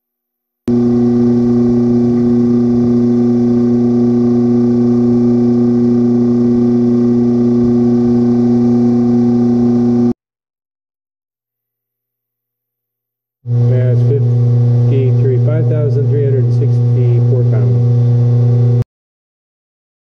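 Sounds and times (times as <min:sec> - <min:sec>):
steady hum of held tones: 0:00.7 - 0:10.2, 0:13.5 - 0:18.8.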